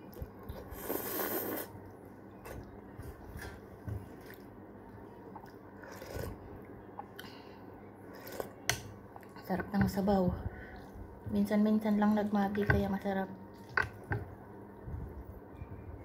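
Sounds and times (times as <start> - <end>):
noisy sip: 0.5 - 1.9
chewing and mouth sounds: 5.3 - 7.4.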